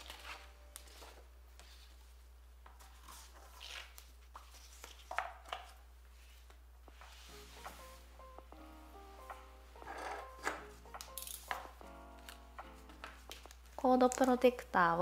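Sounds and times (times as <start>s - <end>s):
paper rustling: 0.0s - 7.8s.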